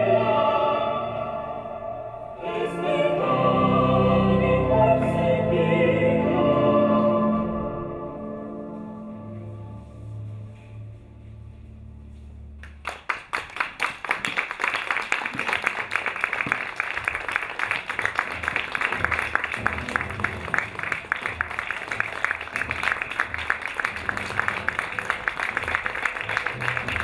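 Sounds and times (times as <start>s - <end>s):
audience applauding: 12.6s - 27.0s.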